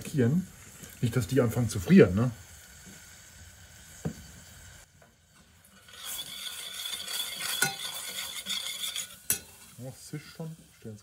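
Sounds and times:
sauce sizzling in a saucepan: 0.0 - 11.0
spoon stirring sauce: 5.9 - 9.8.

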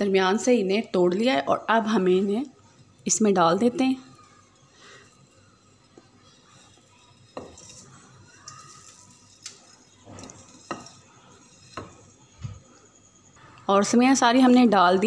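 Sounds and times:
glass bowl clinking against pot: 5.6 - 12.2.

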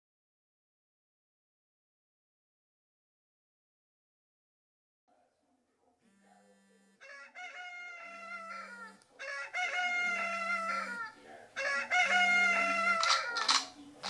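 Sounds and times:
phone vibration buzzing: 6.0 - 7.0
rooster crow alarm: 6.1 - 13.5.

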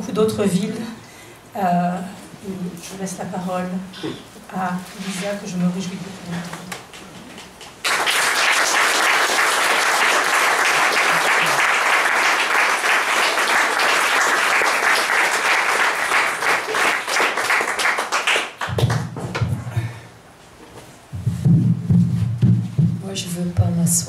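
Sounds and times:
audience applauding: 7.7 - 19.1
microphone handling bumps: 20.7 - 24.0.

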